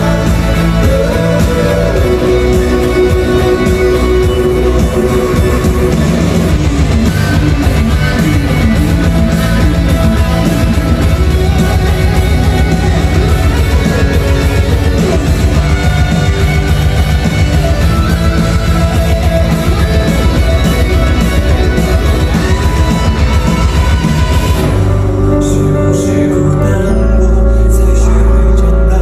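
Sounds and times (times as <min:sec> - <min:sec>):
man singing into microphone: 0:00.0 - 0:07.4, 0:25.2 - 0:29.0
guitar band playing: 0:00.0 - 0:29.0.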